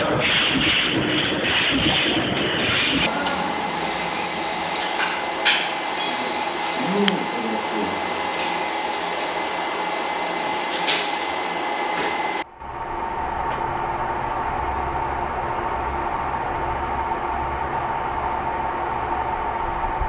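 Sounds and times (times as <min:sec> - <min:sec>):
laser machine hiss: 0:03.0 - 0:12.4.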